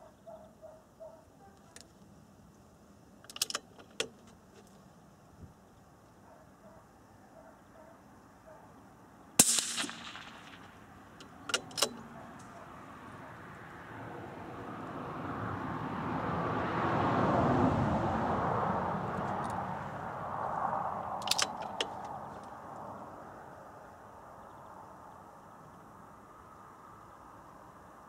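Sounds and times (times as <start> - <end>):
rifle shot: 9.4 - 10.8
sharp clicks: 9.4 - 12.6, 21.2 - 22.2.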